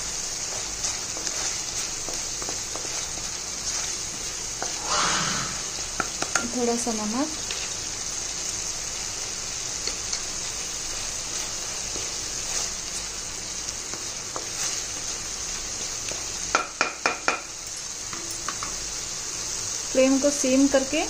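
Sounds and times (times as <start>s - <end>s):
spice mixture sizzling in pan: 0.0s - 21.0s
spatula knocking on pan: 6.0s - 6.5s, 16.5s - 17.5s.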